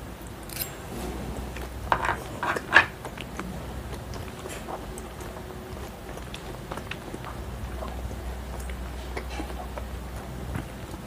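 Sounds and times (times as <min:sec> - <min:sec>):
close chewing with wet mouth sounds: 0:02.9 - 0:11.0.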